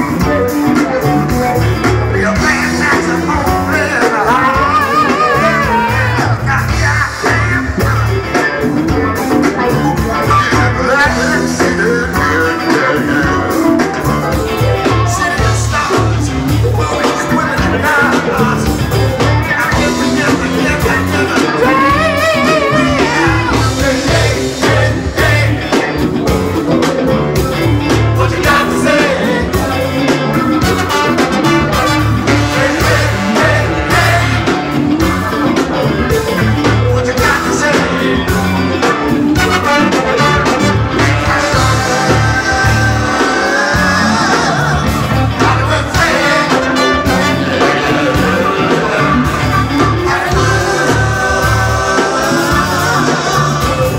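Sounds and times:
bass: 0.0s - 53.9s
congas: 0.0s - 53.9s
drum kit: 0.0s - 53.9s
electric guitar: 0.0s - 53.9s
lead singing: 0.0s - 53.9s
saxophone: 0.0s - 53.9s.

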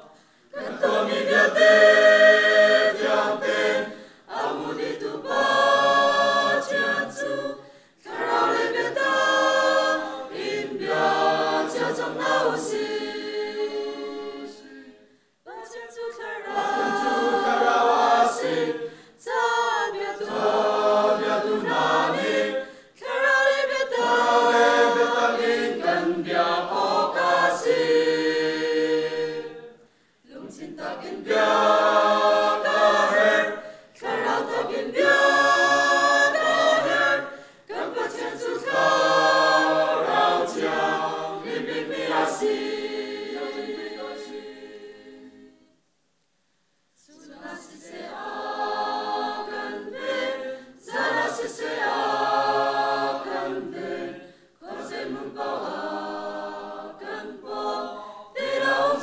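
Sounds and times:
mixed choir singing unaccompanied: 0.0s - 45.8s, 47.0s - 59.0s.

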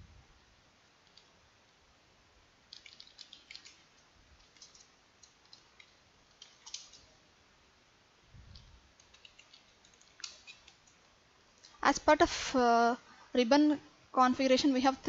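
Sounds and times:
faint keyboard keystrokes: 4.4s - 7.1s.

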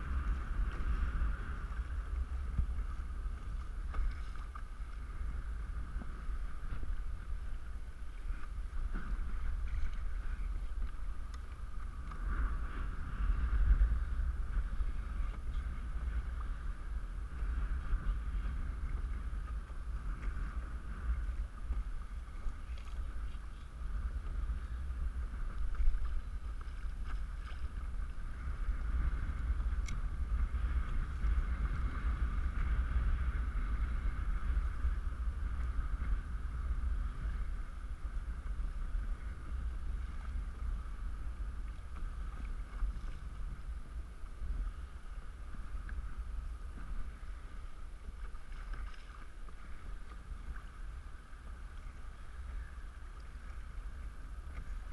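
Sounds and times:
water rushing along kayak hull: 0.0s - 54.9s
wind rumbling on microphone: 0.0s - 54.9s.

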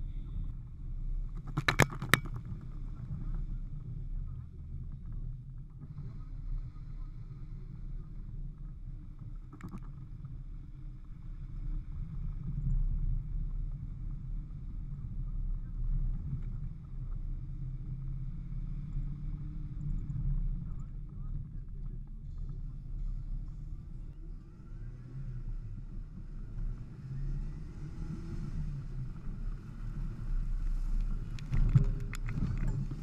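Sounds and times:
off-road vehicle engine droning: 0.0s - 33.0s.

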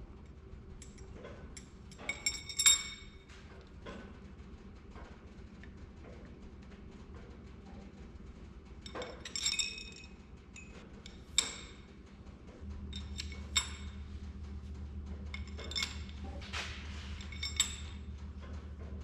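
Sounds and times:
low steady hum: 0.0s - 19.0s
metal rods clinking: 0.8s - 4.1s, 8.8s - 19.0s.

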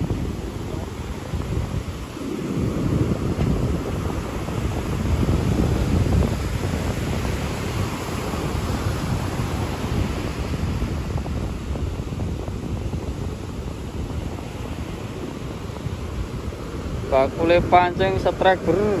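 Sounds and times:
surf breaking on beach: 0.0s - 19.0s
wind rumbling on microphone: 0.0s - 19.0s.

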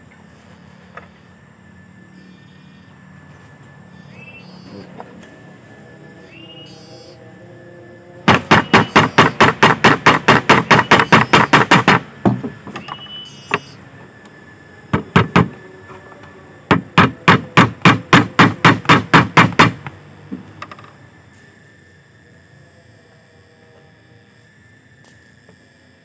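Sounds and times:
hammer tapping on wooden block: 8.3s - 12.5s, 14.9s - 15.5s.

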